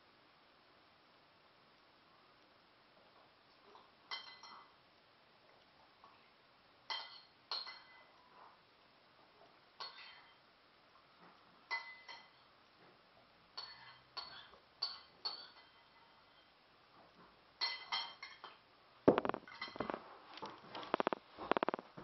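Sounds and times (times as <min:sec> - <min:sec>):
spoon clinking on ceramic dish: 0:04.1 - 0:04.7, 0:06.9 - 0:08.1, 0:09.8 - 0:10.4, 0:11.7 - 0:12.4, 0:13.6 - 0:16.4, 0:17.6 - 0:18.6.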